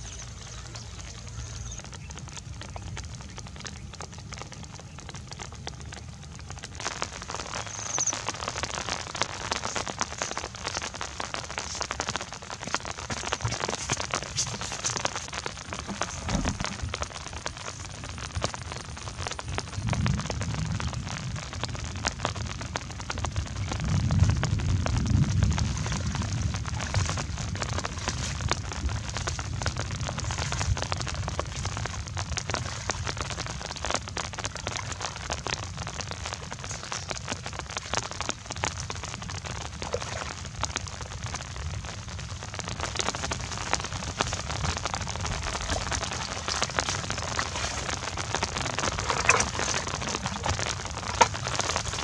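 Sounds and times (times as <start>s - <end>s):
rain falling on water: 0.0s - 52.0s
low rumble: 15.6s - 22.7s.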